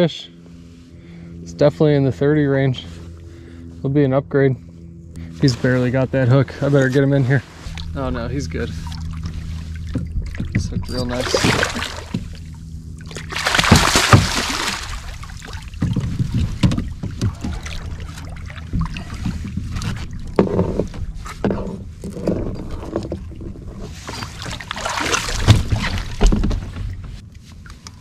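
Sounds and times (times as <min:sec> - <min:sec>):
fish splashing: 0:07.5 - 0:20.4, 0:24.2 - 0:26.3
fish thrashing and thumps: 0:07.6 - 0:28.0
knocks and rustling: 0:08.7 - 0:12.5, 0:15.7 - 0:27.2.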